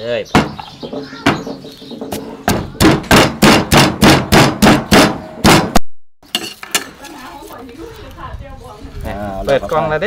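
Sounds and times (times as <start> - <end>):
pestle pounding in stone mortar: 0.3 - 5.8.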